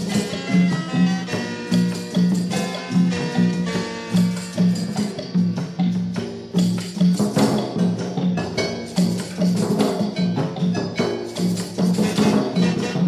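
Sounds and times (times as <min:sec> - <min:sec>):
instrumental folk music: 0:00.0 - 0:13.0
percussion: 0:00.0 - 0:13.0.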